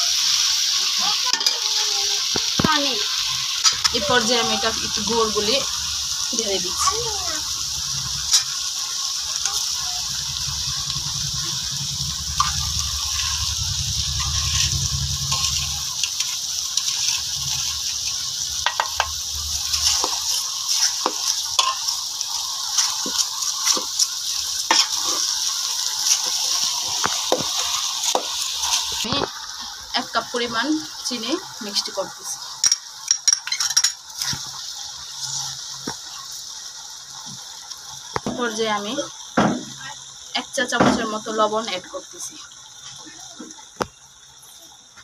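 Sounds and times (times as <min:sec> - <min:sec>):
pickle sizzling in a pot: 0:00.0 - 0:45.0
low rumble: 0:10.1 - 0:16.0
spoon scraping against a pot: 0:24.7 - 0:25.3.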